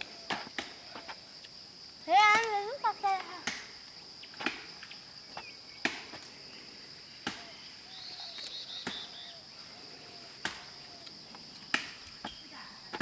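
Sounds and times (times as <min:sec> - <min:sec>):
insects droning: 0:00.0 - 0:13.0
sharp clicks: 0:08.3 - 0:09.0.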